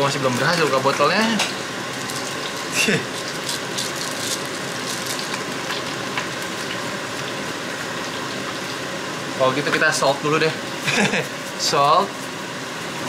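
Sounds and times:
garlic sizzling in oil: 0:00.0 - 0:13.0.

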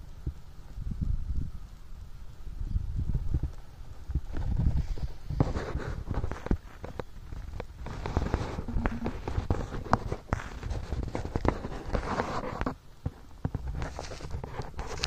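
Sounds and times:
wind buffeting microphone: 0:00.0 - 0:15.0
footsteps crunching on dry soil: 0:04.0 - 0:12.4.

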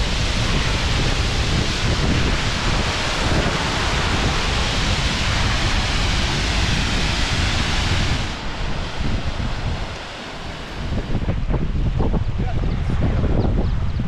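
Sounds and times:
rushing hiss: 0:00.0 - 0:12.2
wind buffeting microphone: 0:00.0 - 0:14.0.

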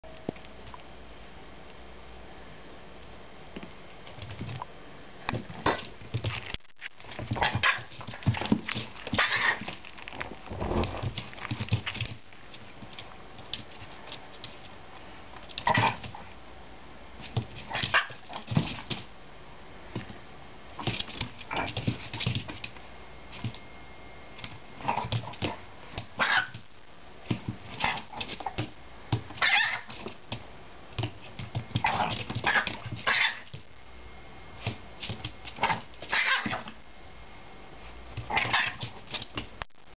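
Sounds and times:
dogs barking and yapping: 0:07.3 - 0:08.4, 0:09.0 - 0:09.8, 0:17.7 - 0:18.5, 0:25.0 - 0:26.6, 0:29.3 - 0:30.1, 0:31.7 - 0:33.6, 0:35.5 - 0:36.8, 0:38.2 - 0:39.1.

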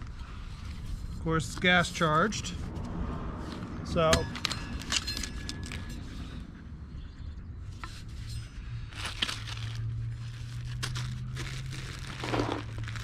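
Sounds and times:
packaging crinkling and rustling: 0:08.9 - 0:13.0.

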